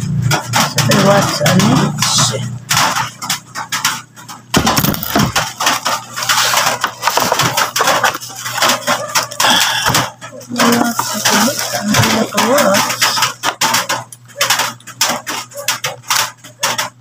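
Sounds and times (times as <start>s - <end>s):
plastic packaging crinkling: 0.5s - 17.0s
cardboard box being handled: 6.2s - 8.3s.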